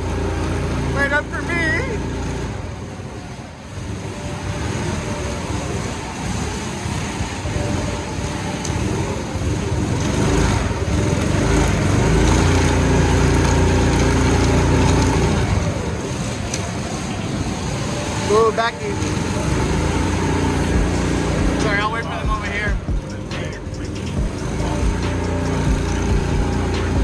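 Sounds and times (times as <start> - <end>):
kart engine running: 0.0 - 27.0
steady hum: 0.0 - 27.0.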